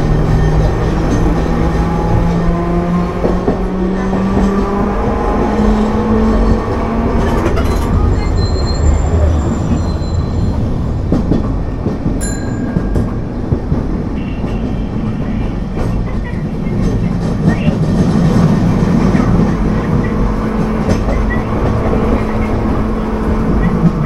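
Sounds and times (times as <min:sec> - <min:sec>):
tram wheels rumbling on rail: 0:00.0 - 0:24.0
high wheel squeals: 0:08.0 - 0:10.7.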